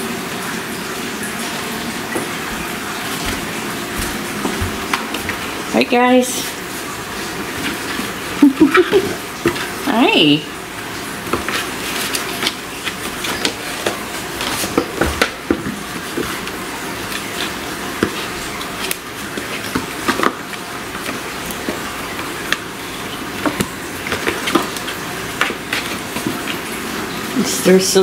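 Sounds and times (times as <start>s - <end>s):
kittens scratching cardboard carton: 10.9s - 26.9s.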